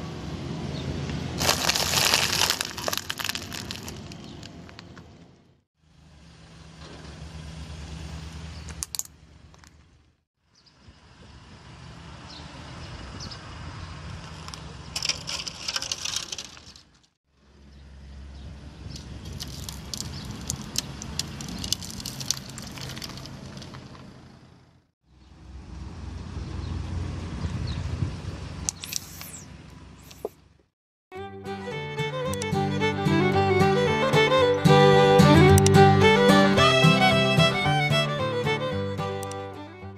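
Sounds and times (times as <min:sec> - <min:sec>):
plastic cracking and crunching: 0:01.4 - 0:04.9, 0:15.0 - 0:17.1, 0:19.3 - 0:23.7
car tyre rolling over asphalt: 0:01.4 - 0:05.2, 0:19.0 - 0:24.8
low engine hum: 0:31.2 - 0:39.9.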